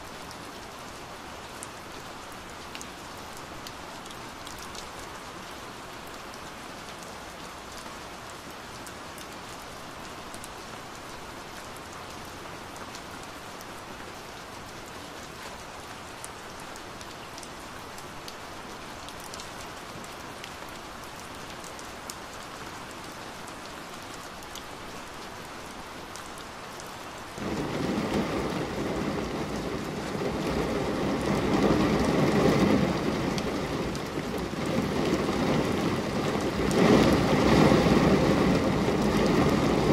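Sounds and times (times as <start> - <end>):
rain pattering on window: 14.4 - 39.9
thunder rumbling: 27.4 - 39.9.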